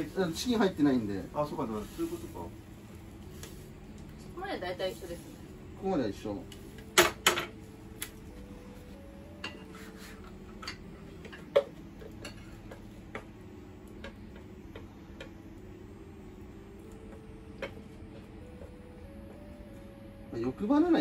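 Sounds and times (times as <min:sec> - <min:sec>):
chopsticks tapping frying pan: 0:10.4 - 0:15.7, 0:16.8 - 0:18.8.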